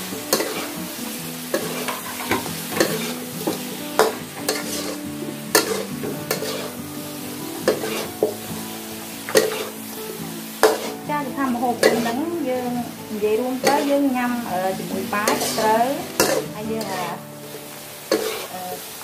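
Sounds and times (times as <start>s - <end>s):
steady sizzle: 0.0s - 19.0s
metal ladle scraping a wok: 1.6s - 3.3s, 4.0s - 6.8s, 7.6s - 8.3s, 9.3s - 9.8s, 10.6s - 11.0s, 11.7s - 12.2s, 15.2s - 18.5s.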